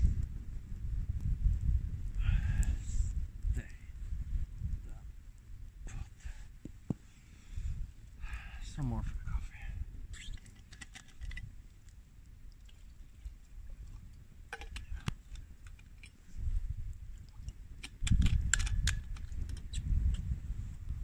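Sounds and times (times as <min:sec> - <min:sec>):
wind buffeting microphone: 0:00.0 - 0:21.0
light clicks and taps: 0:10.4 - 0:16.2.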